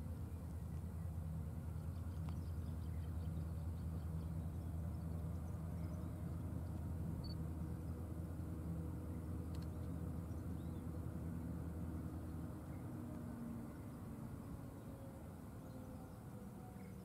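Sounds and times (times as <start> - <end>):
distant diesel locomotive drone: 0.0 - 17.0.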